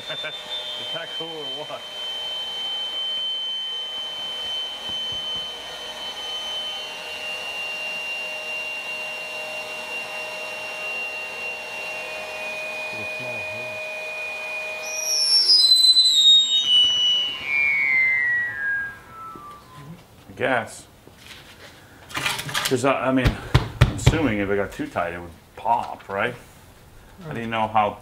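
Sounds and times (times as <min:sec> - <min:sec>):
high whistle sliding down: 0:00.0 - 0:20.2
air pump whining: 0:00.0 - 0:20.3.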